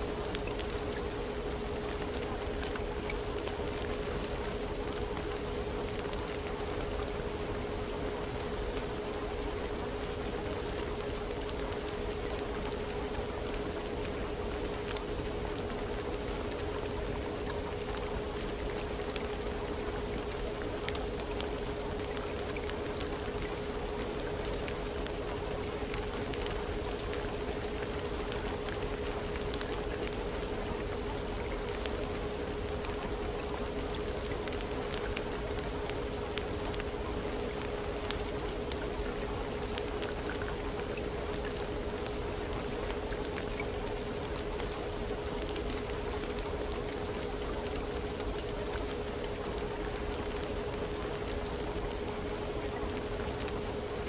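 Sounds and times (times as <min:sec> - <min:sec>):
faint drip ticks: 0:00.0 - 0:54.0
rain-like water noise: 0:00.0 - 0:54.0.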